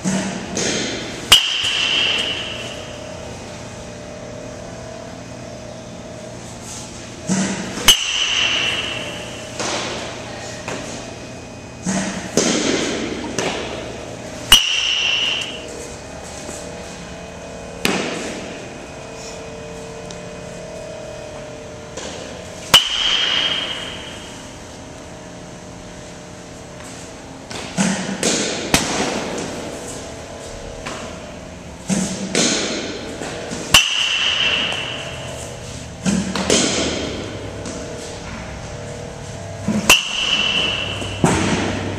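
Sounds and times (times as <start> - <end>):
metal bat hitting baseball: 0.0 - 2.8, 7.3 - 10.0, 11.8 - 13.8, 14.5 - 15.6, 17.8 - 18.2, 22.0 - 24.5, 27.5 - 29.5, 32.0 - 35.3, 36.0 - 37.8, 39.7 - 41.9.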